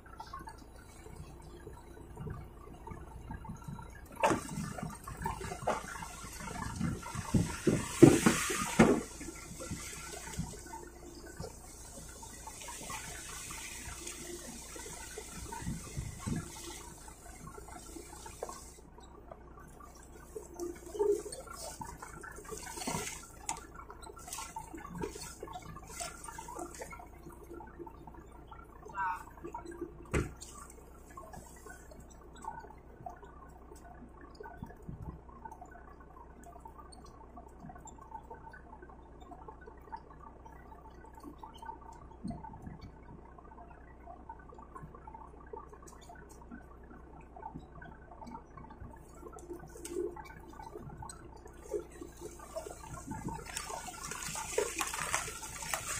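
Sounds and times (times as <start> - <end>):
steady low hum: 0.0 - 55.9
water dripping and trickling: 0.0 - 55.9
splashes: 4.0 - 18.9, 19.6 - 32.5, 48.8 - 55.9
water streaming onto deck: 4.2 - 18.9, 19.9 - 27.6, 51.5 - 55.9
dull thump: 6.8 - 10.6, 30.1 - 30.4
wet squelches: 48.8 - 55.9.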